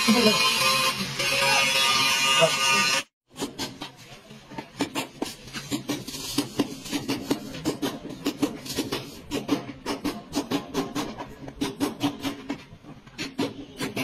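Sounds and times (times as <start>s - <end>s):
hammer striking chisel on sheet metal: 4.7s - 14.0s.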